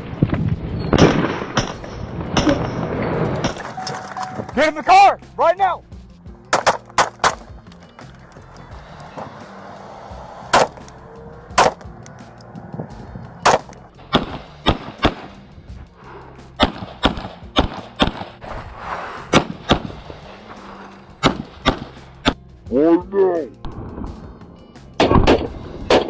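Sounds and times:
low background music: 0:00.0 - 0:26.0
pistol shots: 0:06.5 - 0:07.5, 0:10.5 - 0:10.9, 0:11.5 - 0:11.9, 0:13.4 - 0:15.4, 0:16.6 - 0:18.4, 0:19.3 - 0:20.0, 0:21.2 - 0:22.4.

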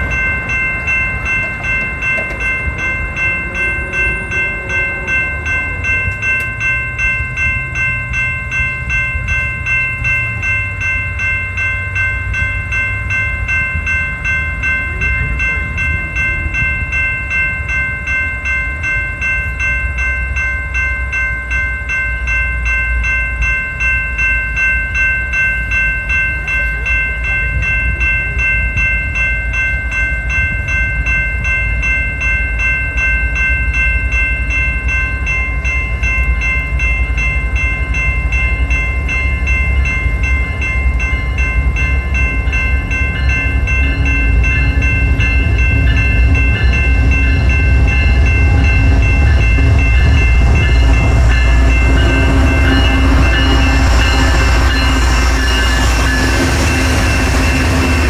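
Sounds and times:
train wheels rolling: 0:00.0 - 0:08.2, 0:39.0 - 0:58.0
diesel locomotive engine rumble: 0:00.0 - 0:58.0
railway crossing bell ringing: 0:00.0 - 0:58.0.

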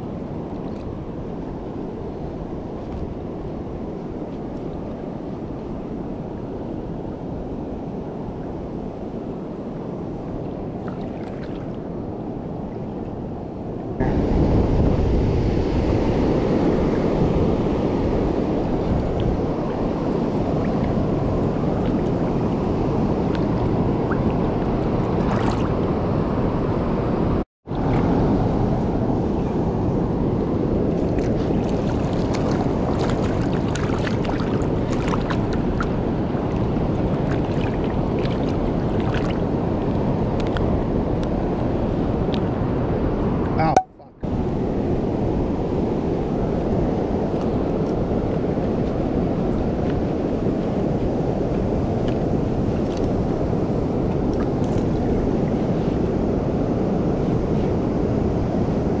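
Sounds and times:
wind buffeting microphone: 0:00.0 - 0:59.0
river water flowing: 0:10.4 - 0:13.3, 0:30.8 - 0:42.2.

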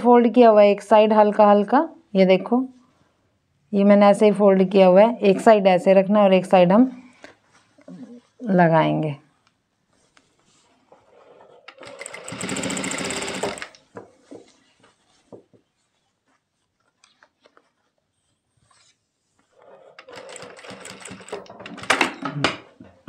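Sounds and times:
industrial sewing machine running: 0:11.7 - 0:13.8.

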